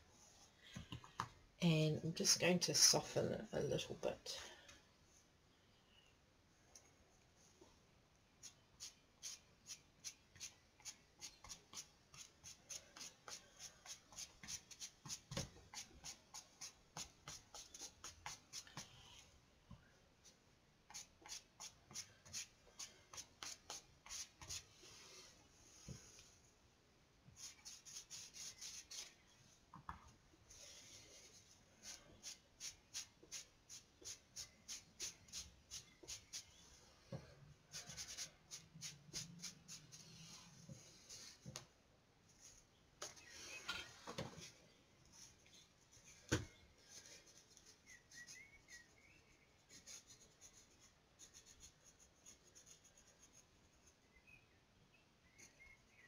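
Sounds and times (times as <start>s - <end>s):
charcoal scratching on paper: 8.4s - 19.0s, 20.9s - 25.2s, 27.4s - 29.2s, 30.6s - 36.6s, 37.7s - 41.6s, 46.9s - 49.0s, 49.6s - 54.1s.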